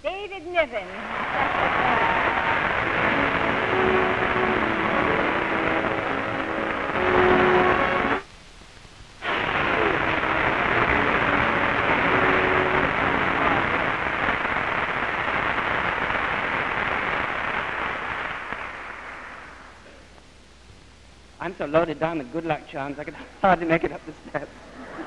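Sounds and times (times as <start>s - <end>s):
audience applauding: 1.0s - 8.2s.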